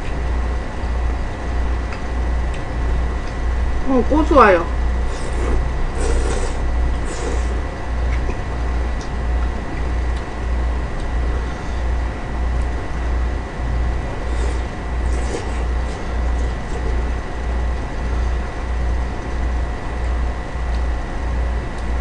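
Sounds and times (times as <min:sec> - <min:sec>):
faint high whine: 0:00.0 - 0:22.0
low throbbing hum: 0:00.0 - 0:22.0
mouth noises eating noodles: 0:05.0 - 0:10.2, 0:13.9 - 0:18.5.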